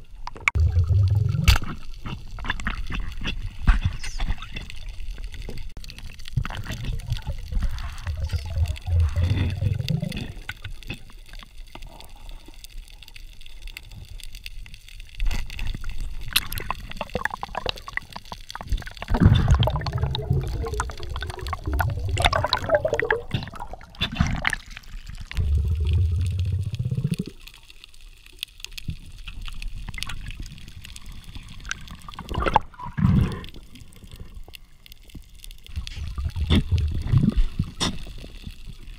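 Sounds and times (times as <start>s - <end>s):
muffled underwater gurgling: 0.3s - 1.8s, 6.5s - 10.5s, 16.4s - 27.4s.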